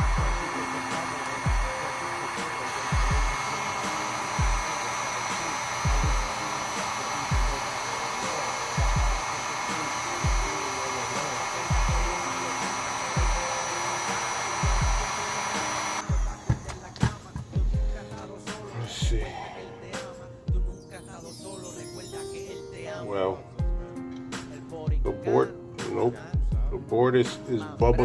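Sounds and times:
heat gun blowing hot air: 0.0s - 20.2s
background music with deep beat: 0.0s - 21.2s, 23.5s - 28.0s.

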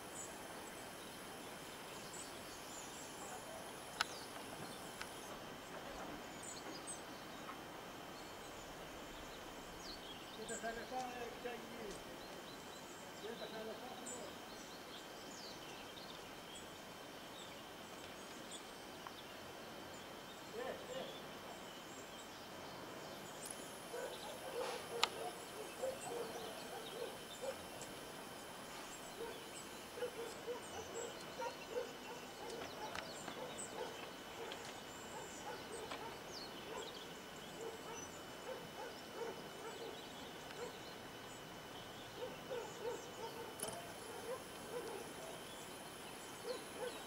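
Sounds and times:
small birds chirping: 0.0s - 47.0s
animal calling: 23.9s - 27.7s
sharp click: 43.6s - 43.9s.

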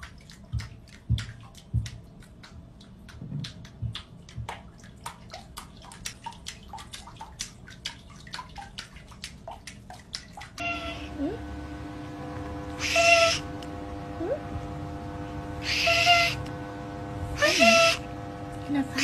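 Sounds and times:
small water splashes: 0.0s - 11.1s.

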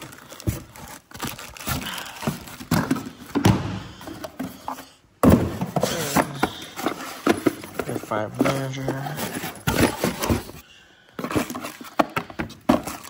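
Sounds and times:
cardboard knocking and rustling: 5.2s - 10.6s, 11.2s - 13.0s.

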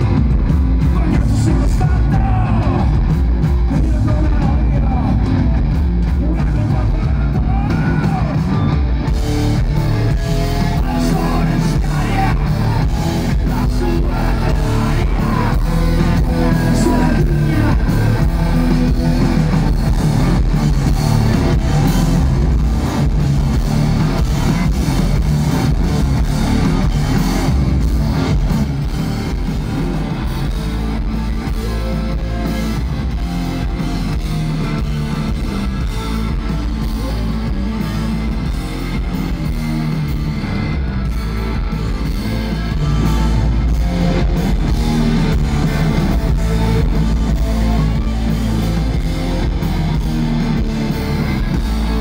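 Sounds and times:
drums: 0.0s - 52.0s
electric guitar: 0.0s - 52.0s
person singing: 0.8s - 3.1s, 10.3s - 18.5s.

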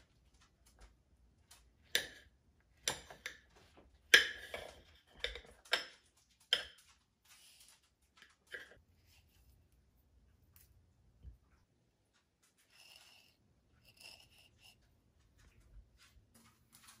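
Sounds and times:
knife slicing tomato: 12.7s - 14.8s.

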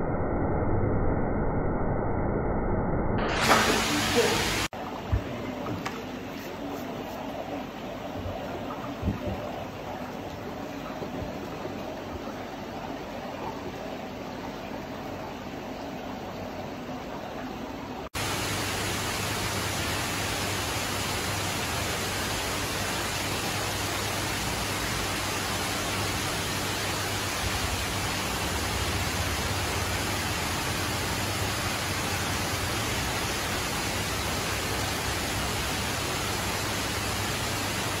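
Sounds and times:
low hum: 0.0s - 3.4s
water rushing into pond: 3.2s - 6.2s, 18.2s - 38.0s.

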